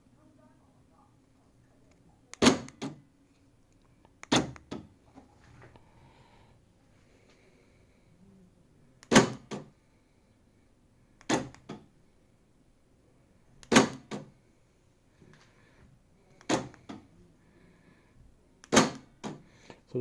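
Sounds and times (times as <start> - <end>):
door lock actuator clacking: 4.2 - 4.9.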